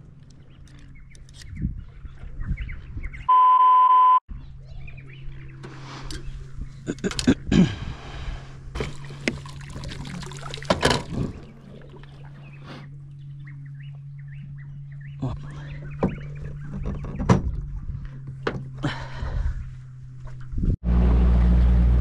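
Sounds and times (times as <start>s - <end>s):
outboard motor idling: 4.9s - 21.9s.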